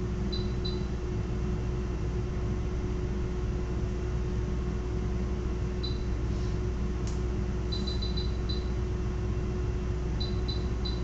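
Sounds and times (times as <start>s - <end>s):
low equipment hum: 0.0s - 11.0s
short high electronic beeps: 7.7s - 8.7s.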